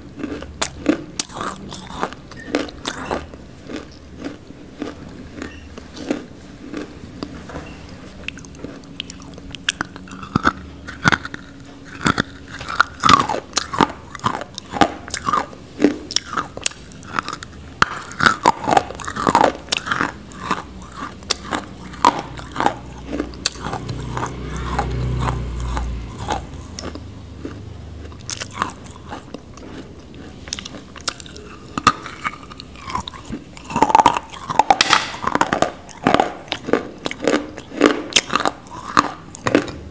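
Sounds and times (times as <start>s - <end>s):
clay being chewed and crunched: 8.2s - 39.8s.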